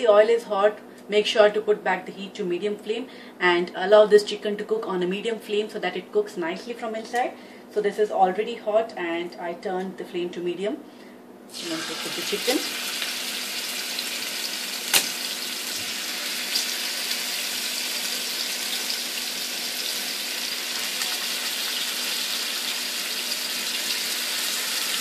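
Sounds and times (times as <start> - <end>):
chicken sizzling in hot oil: 11.5 - 25.0.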